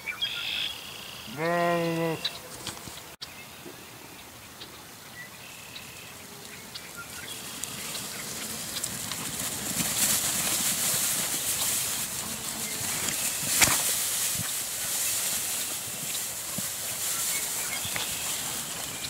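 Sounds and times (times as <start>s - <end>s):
footsteps through grass and hay: 5.0s - 19.0s.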